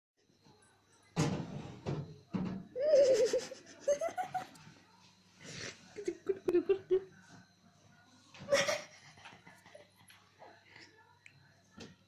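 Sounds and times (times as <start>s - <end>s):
person laughing: 2.9s - 4.5s.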